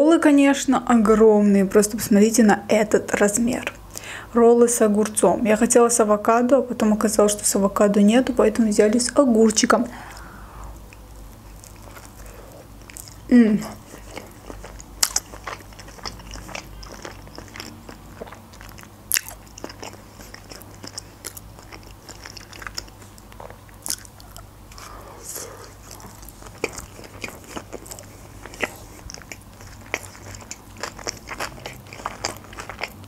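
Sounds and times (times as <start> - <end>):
close chewing with mouth clicks: 10.0 - 33.0.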